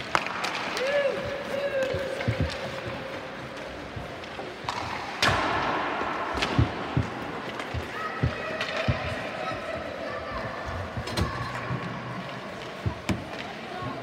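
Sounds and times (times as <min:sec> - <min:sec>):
hockey sticks and puck knocking: 0:00.0 - 0:09.9, 0:10.6 - 0:14.0
sharp bang on rink boards: 0:04.8 - 0:07.0.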